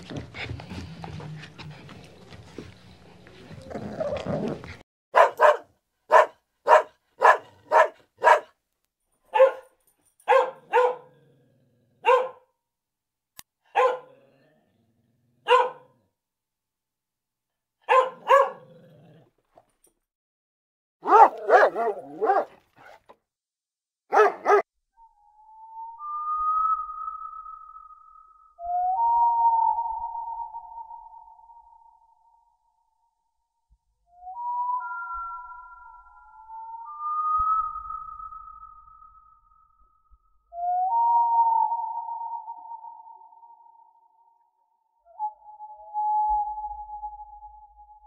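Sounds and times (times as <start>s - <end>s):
dog barking: 5.2s - 8.6s, 9.3s - 11.2s, 12.0s - 12.5s, 13.7s - 14.2s, 15.4s - 16.0s, 17.8s - 18.8s, 21.0s - 23.0s, 24.1s - 24.7s.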